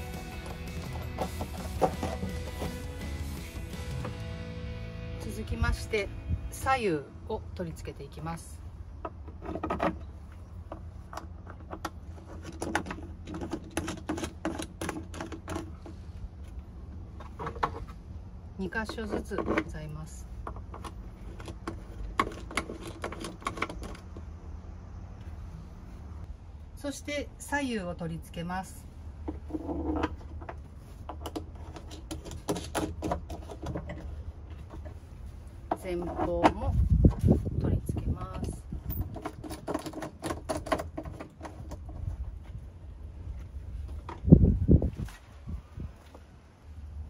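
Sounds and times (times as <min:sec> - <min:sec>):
wooden boxes knocking and clicking: 0:00.0 - 0:03.0
low steady rumble: 0:00.0 - 0:32.0.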